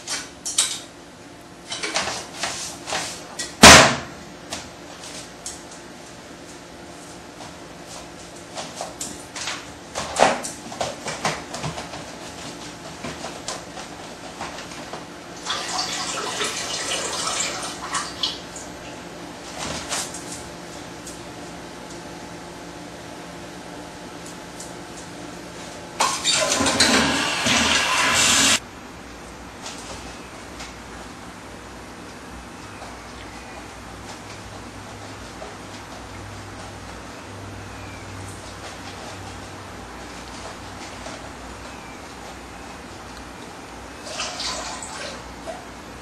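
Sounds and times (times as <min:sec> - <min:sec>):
loud slam: 0:03.6 - 0:04.2
liquid splashing and trickling: 0:44.0 - 0:45.3.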